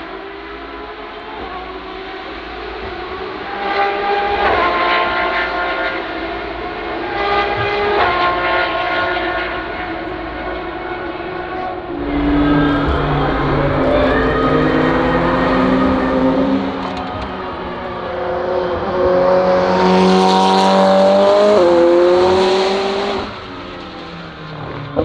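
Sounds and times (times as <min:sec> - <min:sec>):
distant race car engines: 0:00.0 - 0:25.0
deeper engine approaching: 0:09.4 - 0:25.0.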